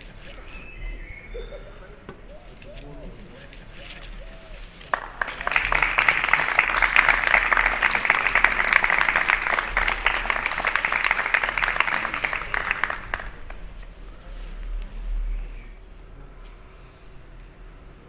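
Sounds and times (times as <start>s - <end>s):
people applauding: 3.9s - 13.8s.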